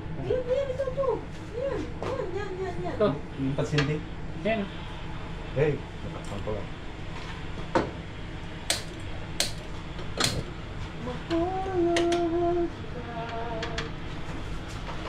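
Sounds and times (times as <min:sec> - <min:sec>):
person humming: 0:11.0 - 0:13.9.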